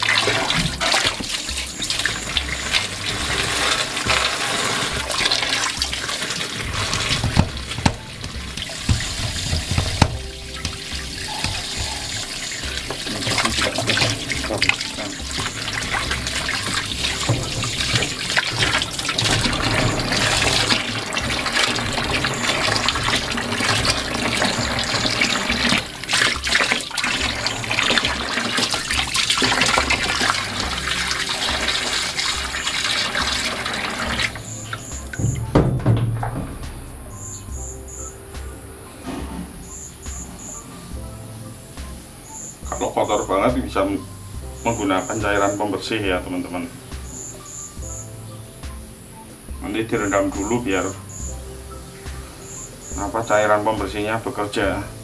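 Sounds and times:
water pouring into washing machine tub: 0:00.0 - 0:37.2.

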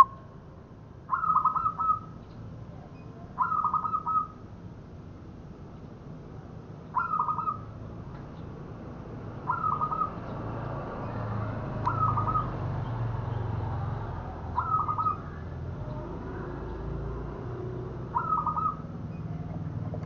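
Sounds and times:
dove cooing: 0:01.1 - 0:02.1, 0:03.4 - 0:04.4, 0:07.0 - 0:07.6, 0:09.4 - 0:10.2, 0:11.9 - 0:12.6, 0:14.5 - 0:20.0.

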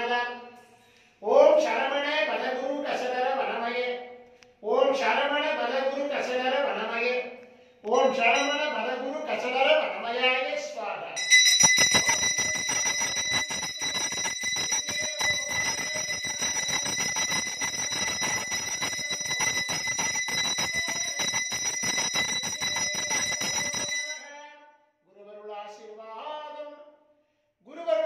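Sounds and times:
brass hand bell ringing rapidly: 0:08.2 - 0:08.8, 0:11.2 - 0:24.4.

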